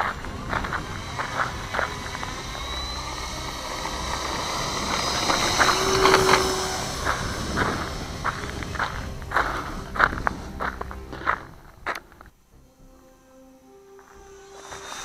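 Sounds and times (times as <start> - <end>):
model plane motor whine: 0.0 - 10.4, 13.9 - 15.0.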